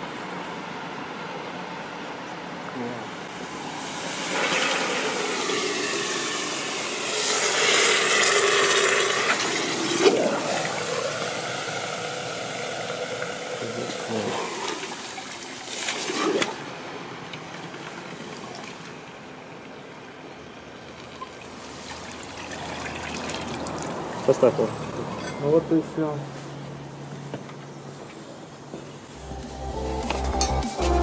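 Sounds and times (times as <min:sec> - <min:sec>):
water hissing and boiling: 0:03.4 - 0:16.8, 0:21.2 - 0:24.4.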